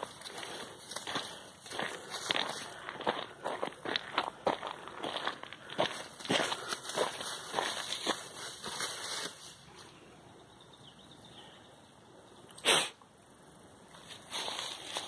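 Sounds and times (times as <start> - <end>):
footsteps in dry leaves: 0.0 - 9.9, 13.9 - 15.0
sneeze: 12.6 - 13.0.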